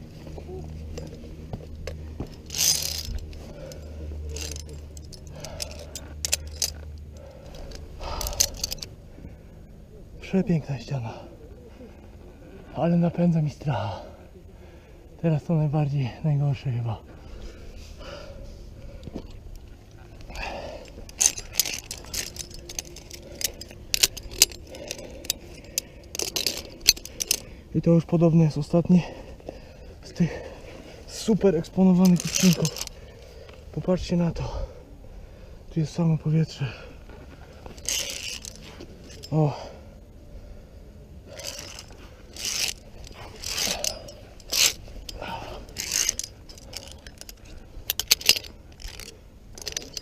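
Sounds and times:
carabiners jangling on steel cable: 0.5s - 9.0s, 19.3s - 34.6s, 35.9s - 39.8s, 41.3s - 50.0s.

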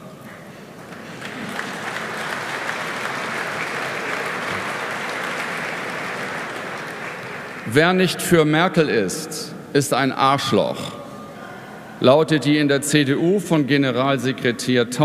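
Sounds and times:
audience applauding: 0.8s - 7.8s.

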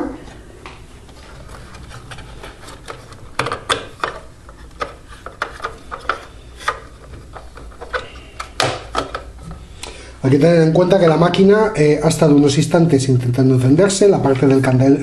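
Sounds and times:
plastic cover clicks and creaks: 1.4s - 9.3s.

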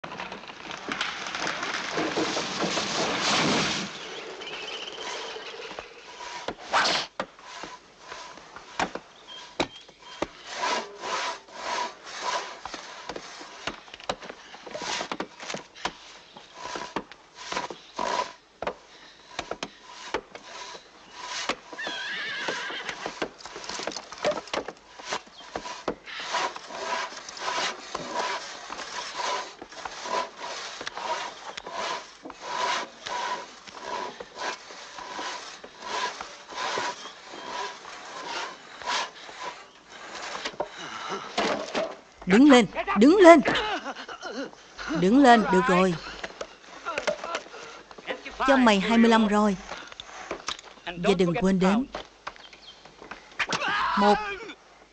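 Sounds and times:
saw scraping wood: 0.1s - 43.6s, 44.6s - 53.1s
crashing rush: 1.5s - 4.5s.

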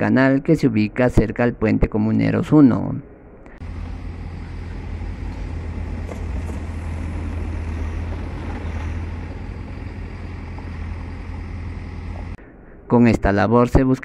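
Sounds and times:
low street ambience rumble: 3.0s - 13.0s
car driving past on dirt road: 3.6s - 12.4s.

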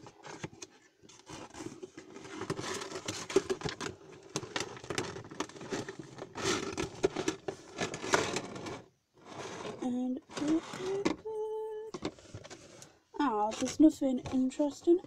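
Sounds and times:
cardboard box scraping and crinkling: 0.0s - 11.2s.

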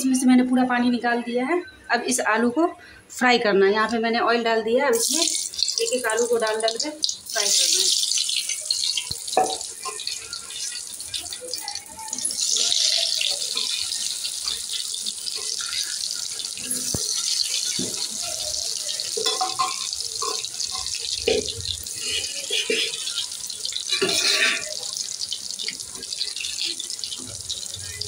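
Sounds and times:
potatoes sizzling in hot oil: 4.9s - 28.0s.

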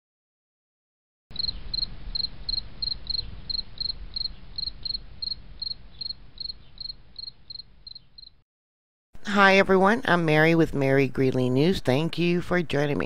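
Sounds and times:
cricket chirping: 1.3s - 8.4s.

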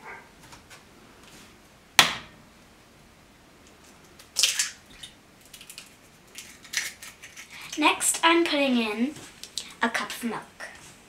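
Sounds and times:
eggshell crackling apart: 4.0s - 7.8s
egg cracking on glass rim: 4.2s - 7.8s.

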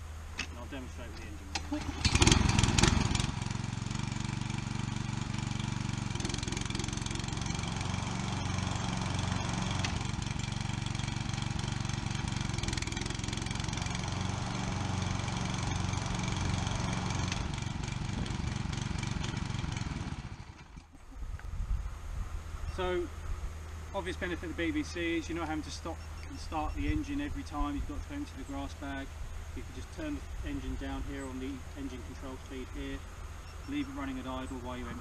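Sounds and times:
lawn mower engine running: 0.0s - 21.5s.

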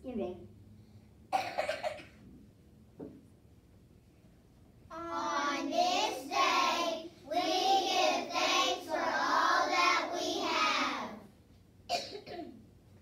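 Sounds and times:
children singing together: 4.9s - 11.2s.

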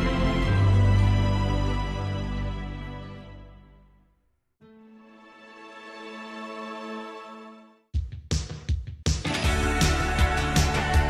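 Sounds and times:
music of sustained notes: 0.0s - 4.0s, 4.7s - 7.8s.

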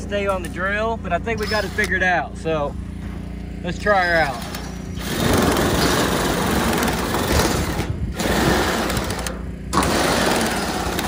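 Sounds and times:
drill cutting sheet metal: 1.4s - 2.0s, 4.3s - 11.0s.

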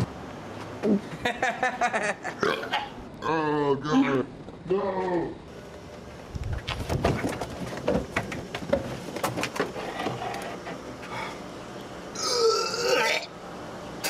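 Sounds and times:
man retching belch: 12.2s - 13.3s.

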